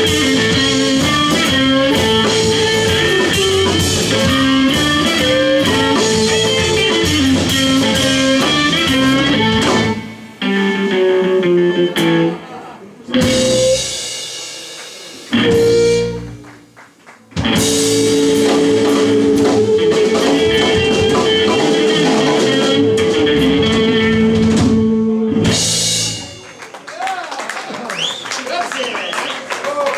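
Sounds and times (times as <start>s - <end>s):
drums and cymbals crashing: 0.0s - 11.1s, 13.1s - 26.8s
electric guitar chord: 0.0s - 12.5s, 17.4s - 26.5s
harmonica wavering note: 15.4s - 16.5s, 17.7s - 25.6s.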